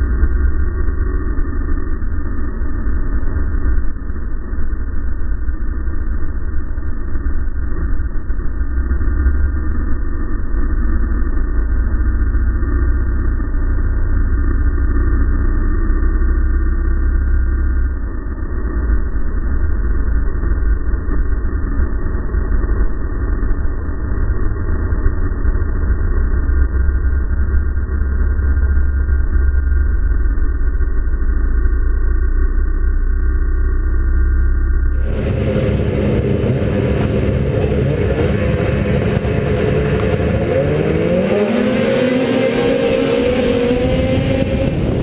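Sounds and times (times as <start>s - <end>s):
snowmobile engine and track: 0.0s - 34.2s, 34.9s - 45.0s
wind rumble on microphone: 35.0s - 45.0s.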